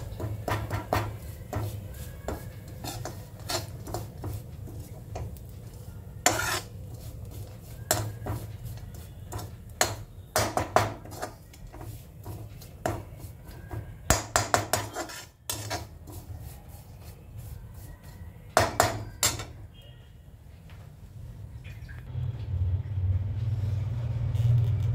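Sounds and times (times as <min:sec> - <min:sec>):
metal spoon scraping a pan: 0:00.0 - 0:17.2, 0:17.8 - 0:19.6.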